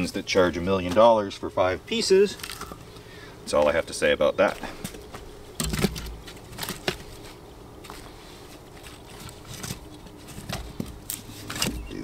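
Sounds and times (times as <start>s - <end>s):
firewood and camp gear knocks: 5.1s - 7.1s.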